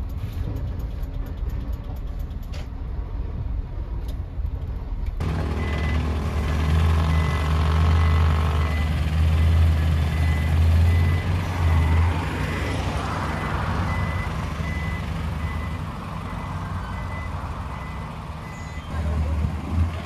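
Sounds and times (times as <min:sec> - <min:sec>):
diesel lorry engine running: 0:00.0 - 0:20.0
reversing alarm beeping: 0:05.5 - 0:06.2, 0:07.0 - 0:18.9.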